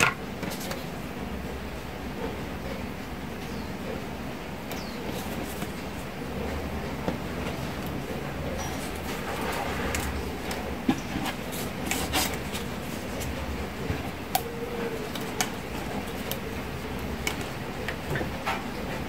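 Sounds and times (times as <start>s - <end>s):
steady low hum: 0.0s - 19.0s
plastic straws rustling: 8.6s - 18.4s.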